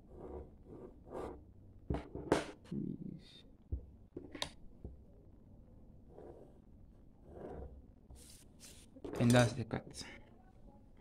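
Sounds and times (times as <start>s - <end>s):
pencil scratching on paper: 0.0s - 1.4s, 6.1s - 6.6s, 7.2s - 9.3s.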